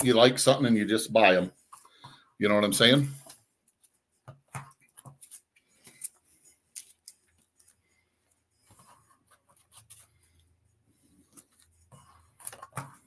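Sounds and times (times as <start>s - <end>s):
paper rustling: 2.8s - 13.0s.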